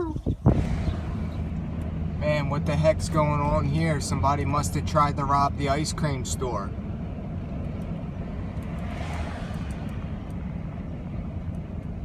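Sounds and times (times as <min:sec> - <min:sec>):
vehicle engine and road noise: 0:00.0 - 0:12.0.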